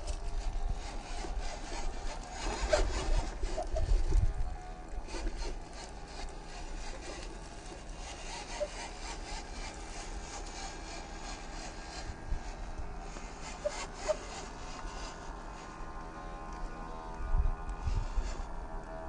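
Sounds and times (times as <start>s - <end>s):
electric motor whining: 0.0s - 19.0s
tyres scraping on rock: 5.0s - 15.2s.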